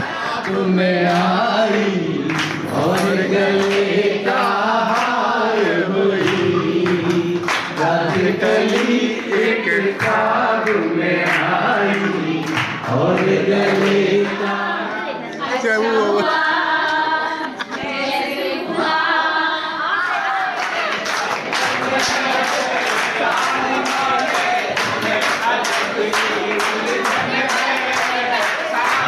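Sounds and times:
man singing through loudspeaker: 0.0s - 16.5s
men singing together: 0.0s - 29.0s
hand-clapping: 0.4s - 14.5s, 20.2s - 29.0s.

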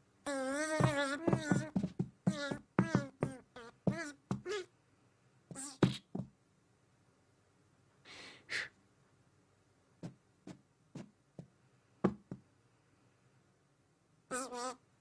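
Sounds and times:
breathy exhale: 8.1s - 8.8s.

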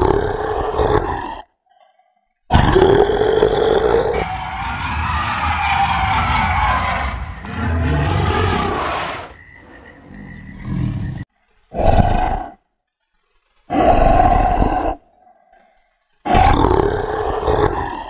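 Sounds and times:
dinosaur roaring: 2.5s - 12.6s, 13.7s - 15.0s, 16.3s - 18.0s
quiet growl: 7.5s - 12.6s.

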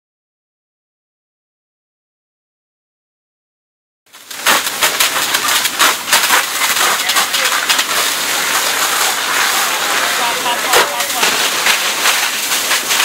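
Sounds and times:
burning wood crackling and popping: 4.1s - 13.0s
steady fire hiss: 4.1s - 13.0s.

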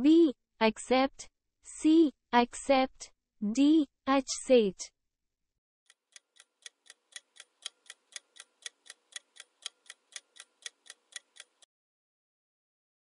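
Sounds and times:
clock ticking: 5.9s - 11.7s.

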